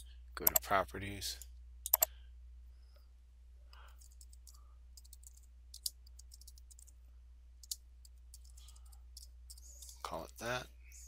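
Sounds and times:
steady low hum: 0.0 - 11.0
keyboard typing clicks: 0.4 - 0.6, 1.8 - 2.1, 4.0 - 6.9.

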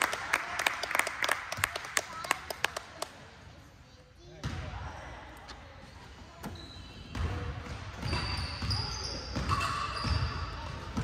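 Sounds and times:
voices in gym: 0.0 - 11.0
sneakers squeaking on court: 5.7 - 11.0.

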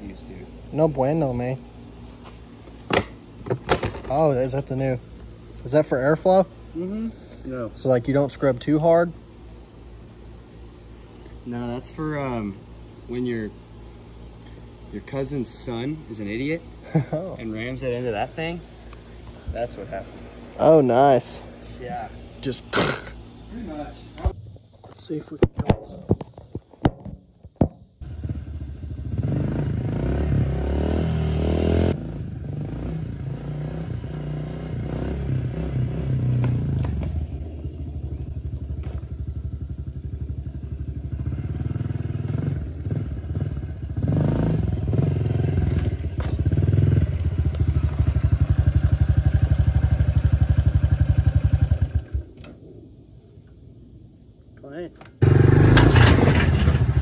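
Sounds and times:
motorbike engine running: 34.0 - 52.3, 55.2 - 57.0.

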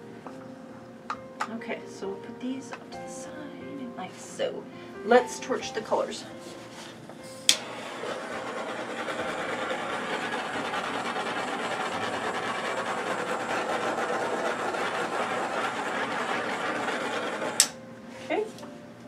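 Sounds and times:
torch flame hissing: 6.4 - 17.8
torch igniting click: 7.4 - 8.7, 17.5 - 17.8.

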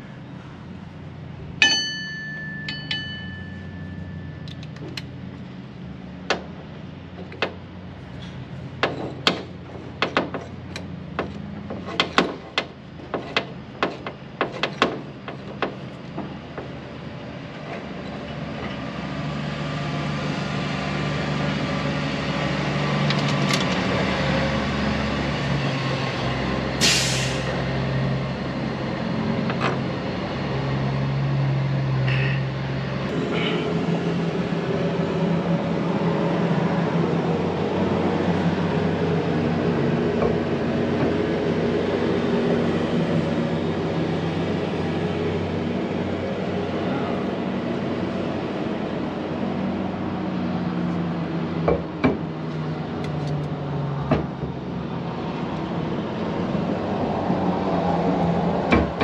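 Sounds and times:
metal clink: 1.6 - 5.0
short hiss: 26.8 - 27.5.

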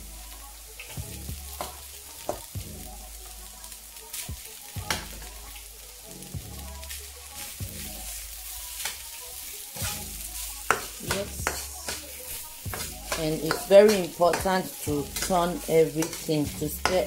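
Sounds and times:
food sizzling in a frying pan: 0.0 - 17.0
metal spatula scraping a pan: 9.7 - 17.0.

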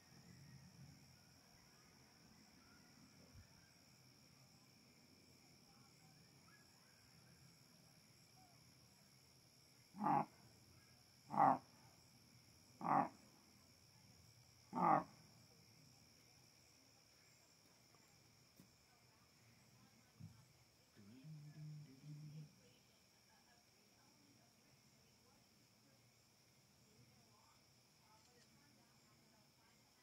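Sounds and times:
coyotes calling: 10.0 - 10.3.

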